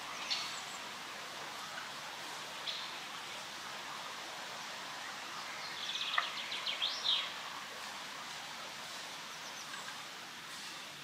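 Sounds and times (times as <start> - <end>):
songbird singing: 0.0 - 3.4, 4.5 - 7.5, 9.0 - 10.2
wind in leaves: 0.0 - 11.0.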